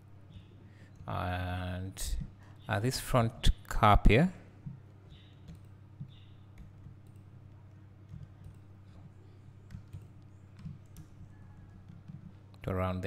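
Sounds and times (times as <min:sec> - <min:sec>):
low steady hum: 0:00.0 - 0:13.0
computer mouse clicks: 0:05.1 - 0:07.3.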